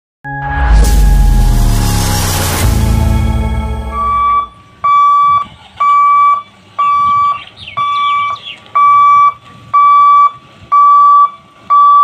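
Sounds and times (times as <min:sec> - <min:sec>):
level crossing warning buzzer beeping: 0:03.9 - 0:12.0.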